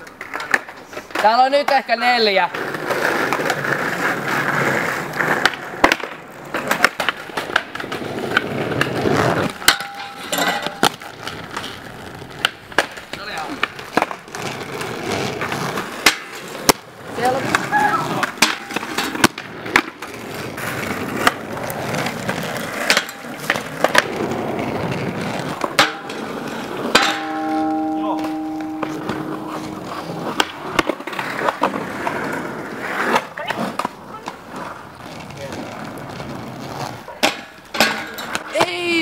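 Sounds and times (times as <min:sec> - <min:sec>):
skate wheels rolling on asphalt: 0:00.0 - 0:39.0
skates clacking on steel rail: 0:00.0 - 0:39.0
metal rail ringing: 0:09.6 - 0:11.0, 0:25.8 - 0:30.9, 0:37.4 - 0:38.4.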